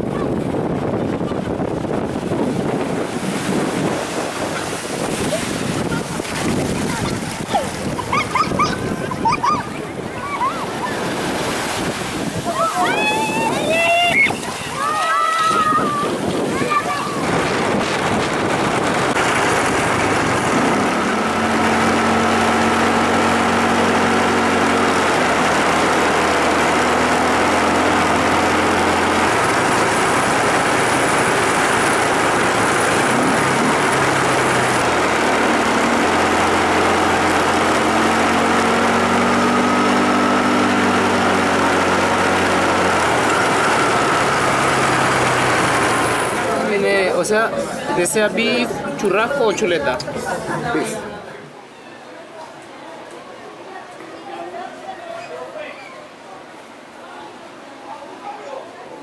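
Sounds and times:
loud rushing noise: 0:00.0 - 0:51.0
vehicle engine running: 0:17.3 - 0:47.1.

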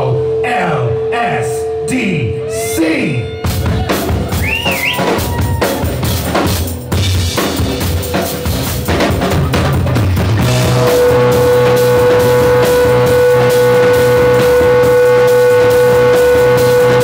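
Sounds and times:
high held note: 0:00.0 - 0:03.7, 0:10.4 - 0:17.0
electric guitar: 0:02.4 - 0:17.0
drum kit: 0:03.4 - 0:17.0.

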